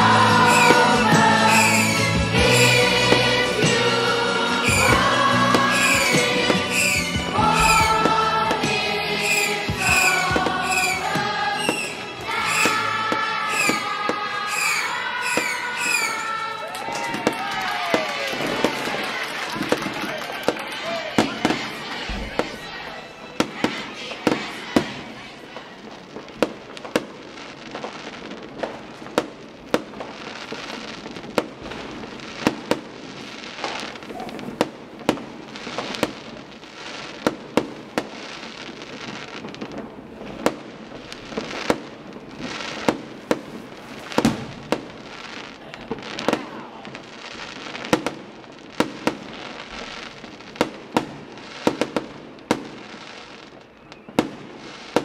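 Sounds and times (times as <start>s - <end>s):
fireworks bangs: 0.0s - 55.0s
continuous crackling hiss: 23.6s - 55.0s.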